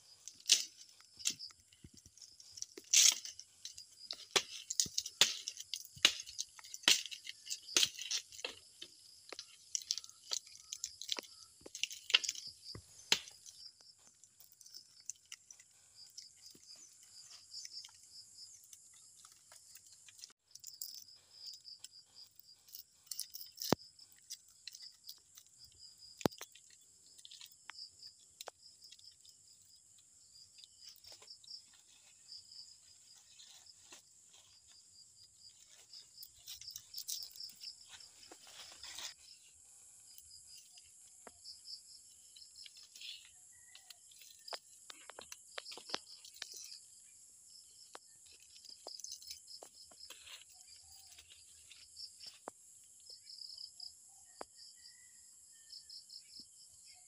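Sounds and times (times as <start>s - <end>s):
leaf strips crackling and tearing: 0.0s - 21.5s, 30.6s - 41.2s
crickets trilling: 0.0s - 57.0s.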